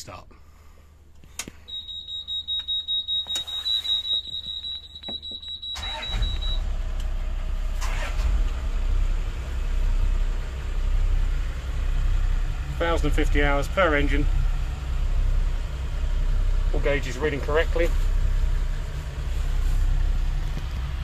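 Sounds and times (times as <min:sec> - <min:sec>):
high-pitched warning buzzer beeping: 0:01.7 - 0:06.6
engine cranking: 0:05.8 - 0:06.7, 0:07.8 - 0:08.6.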